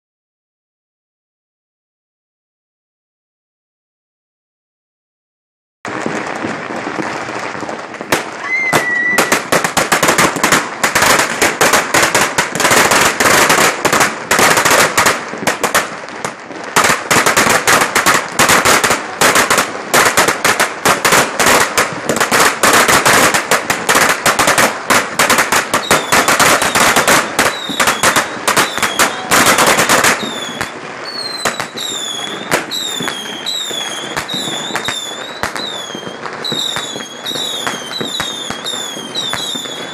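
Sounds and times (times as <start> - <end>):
firecrackers crackling: 5.9 - 39.9
falling firework whistles: 8.2 - 11.8, 22.3 - 39.9.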